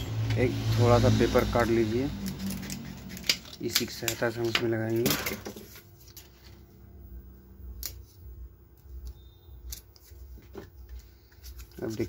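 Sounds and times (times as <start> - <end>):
scissors snipping paper: 2.2 - 5.0.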